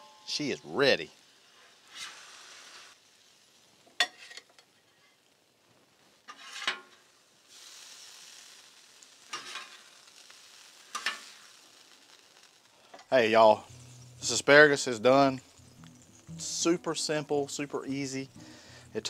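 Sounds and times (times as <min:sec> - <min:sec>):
faint griddle sizzle: 0:00.0 - 0:19.0
metal spatulas scraping griddle: 0:01.7 - 0:02.9, 0:06.3 - 0:07.0, 0:09.3 - 0:09.9, 0:10.9 - 0:11.5.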